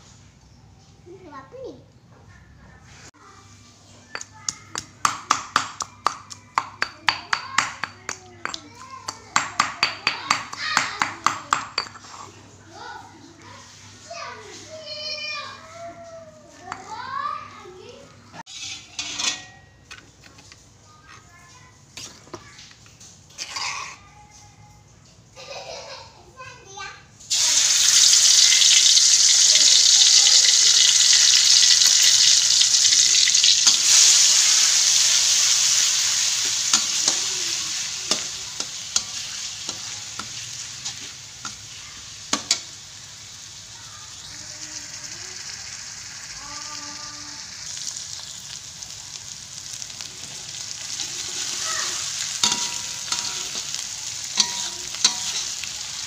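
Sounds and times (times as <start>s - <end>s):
aromatics sizzling in hot oil: 4.1s - 24.1s, 27.2s - 56.0s
metal spatula scraping a wok: 18.5s - 19.7s, 23.3s - 24.0s, 32.9s - 42.8s, 50.5s - 56.0s.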